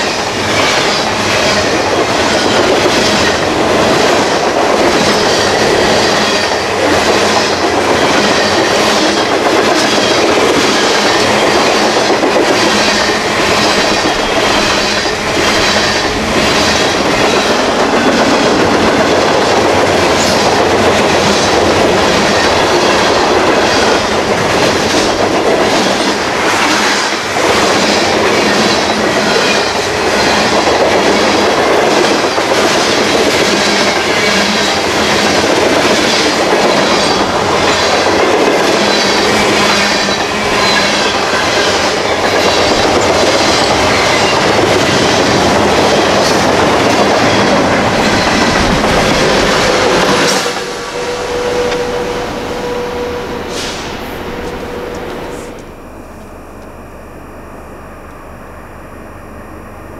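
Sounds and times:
wheels clacking over rail joints: 0.0s - 52.4s
freight train cars rolling: 0.0s - 56.6s.

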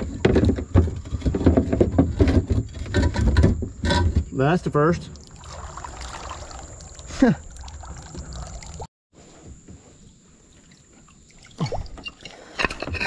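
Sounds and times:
water trickling and lapping: 5.0s - 8.9s, 10.3s - 12.9s.

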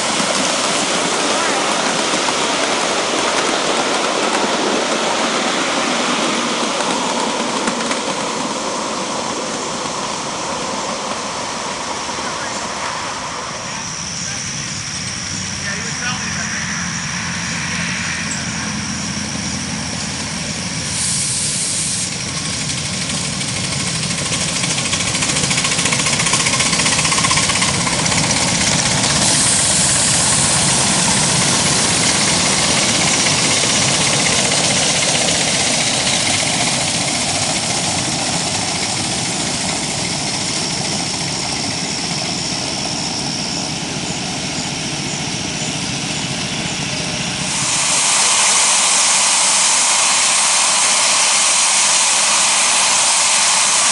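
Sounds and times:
steam locomotive exhaust and hiss: 0.0s - 53.9s
wheels on rails: 0.0s - 53.9s.

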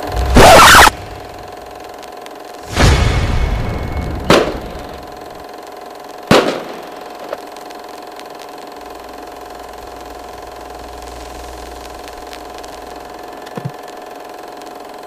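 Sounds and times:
droning hum: 0.0s - 15.0s
sharp hit: 2.6s - 5.2s.

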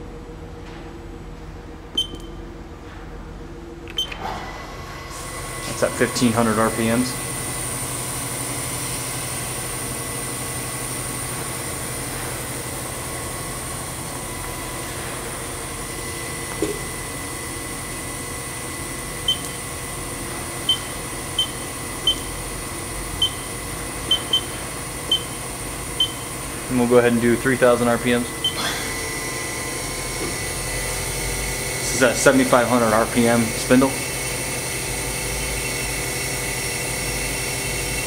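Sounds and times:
machine spindle humming: 0.0s - 38.0s
control panel beeps: 2.0s - 2.4s, 3.9s - 4.2s, 19.3s - 19.6s, 20.6s - 22.4s, 23.2s - 23.5s, 24.1s - 25.4s, 26.0s - 26.3s, 28.4s - 28.6s.

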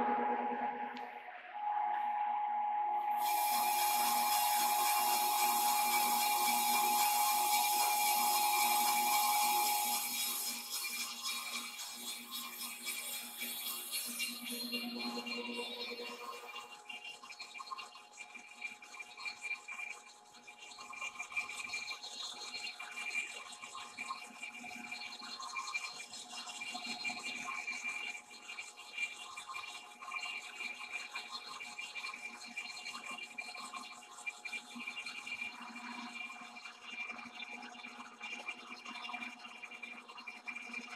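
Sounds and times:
lathe machine whine: 0.0s - 10.7s.

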